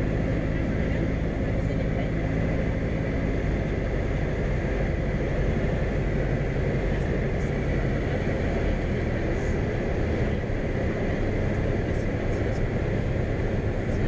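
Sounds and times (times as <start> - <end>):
aircraft engine and propeller: 0.0 - 14.0.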